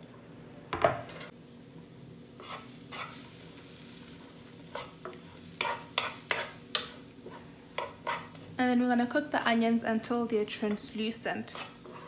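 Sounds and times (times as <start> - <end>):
onions sizzling in pan: 0.0 - 12.0
wooden spoon scraping pan: 2.4 - 3.3, 4.7 - 6.6, 7.2 - 8.4, 10.8 - 12.0.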